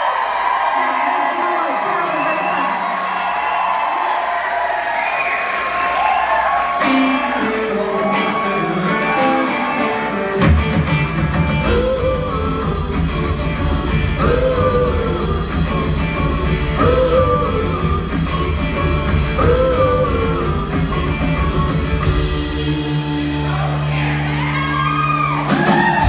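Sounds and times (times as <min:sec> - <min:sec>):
live band playing: 0:05.5 - 0:26.0.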